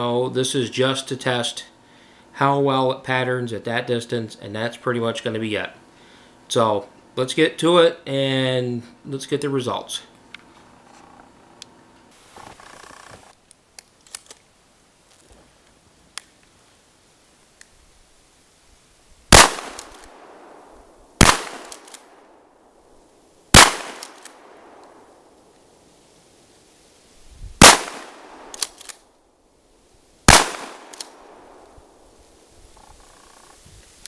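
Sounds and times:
shotgun shots echoing: 19.3 - 22.3, 23.5 - 25.2, 27.6 - 29.0, 30.3 - 32.0.

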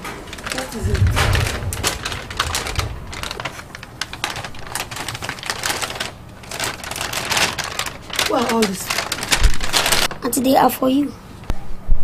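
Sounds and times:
plastic bag rustling: 0.0 - 10.4
low bump: 0.7 - 4.9.

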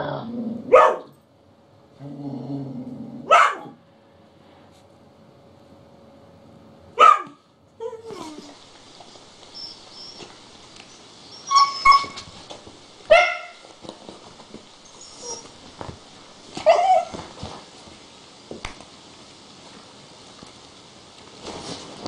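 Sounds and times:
dog whining: 7.8 - 12.4, 14.8 - 15.6, 16.6 - 17.2
dogs barking and yipping: 9.5 - 12.5, 13.1 - 13.7, 16.6 - 17.2.

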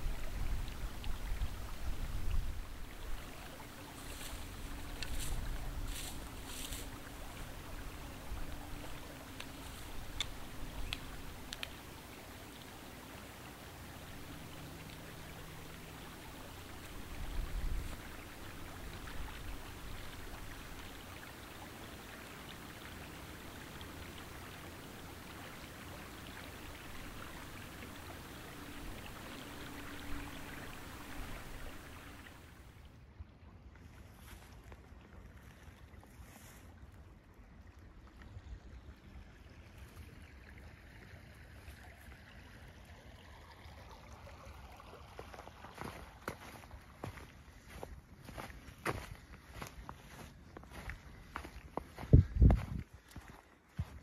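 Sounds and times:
creek water running: 0.0 - 33.0, 33.7 - 54.0
footsteps crunching in snowy grass: 3.1 - 11.8, 15.6 - 21.0, 45.7 - 54.0
wind gusting on microphone: 52.0 - 53.0.

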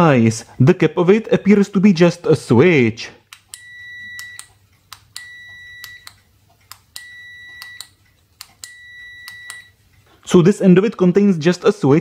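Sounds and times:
multimeter high beep: 3.6 - 4.5, 5.2 - 6.1, 7.0 - 8.0, 8.6 - 9.8.

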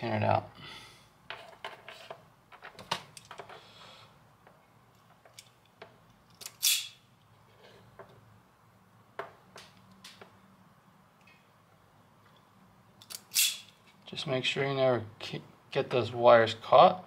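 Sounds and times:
loud sharp snap: 6.4 - 7.0.

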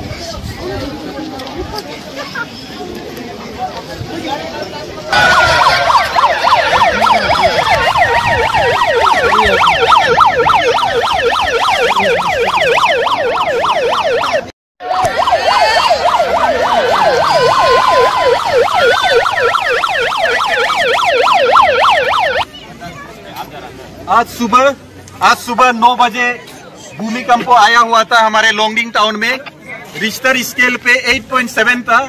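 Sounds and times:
electronic siren yelping: 5.1 - 22.5.

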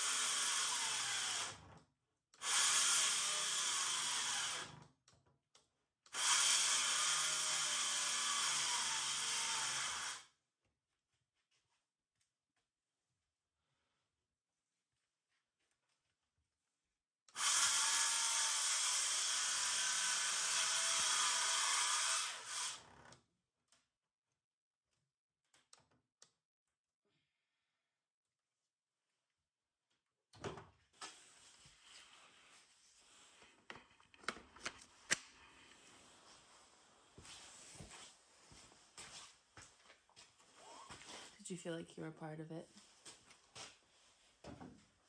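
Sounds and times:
circular saw cutting plywood: 17.4 - 22.8.

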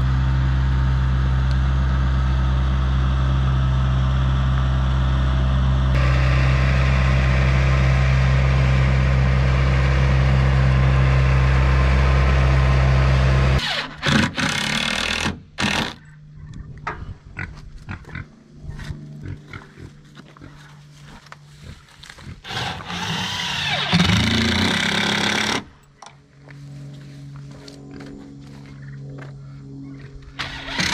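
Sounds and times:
loader engine running: 0.0 - 16.2, 19.0 - 30.9
impact driver driving screws into wood: 13.6 - 16.0, 22.5 - 25.7, 30.7 - 30.9.

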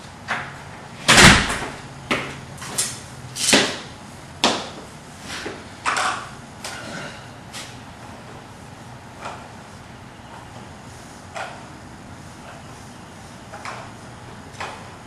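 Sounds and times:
door banging shut: 1.1 - 1.8.

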